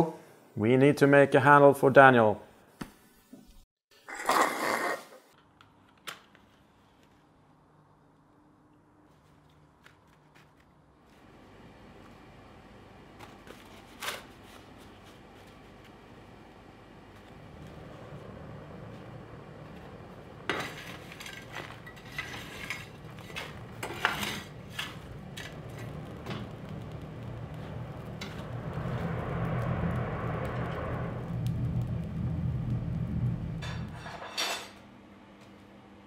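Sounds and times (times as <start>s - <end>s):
forge air blower humming: 11.2s - 36.0s
air rushing through fire: 14.4s - 34.2s
metal tool scraping coal: 20.5s - 26.4s.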